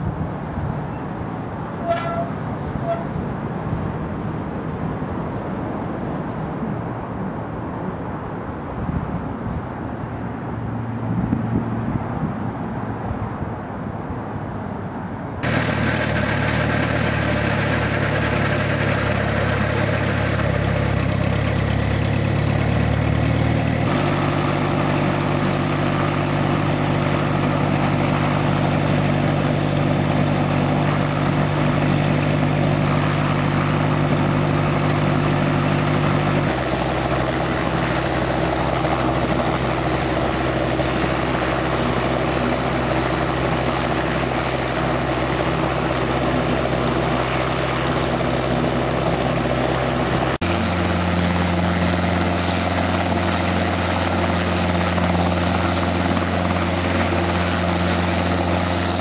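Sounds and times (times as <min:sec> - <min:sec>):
helicopter engine idling: 0:15.4 - 0:59.0
helicopter rotor turning: 0:15.4 - 0:59.0.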